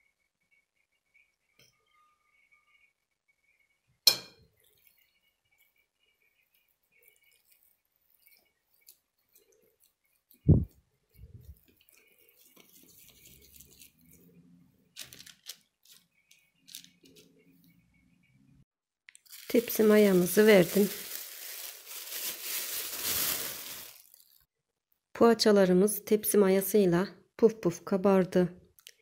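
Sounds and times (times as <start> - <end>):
dough being shaped by hand: 0.1 - 14.6.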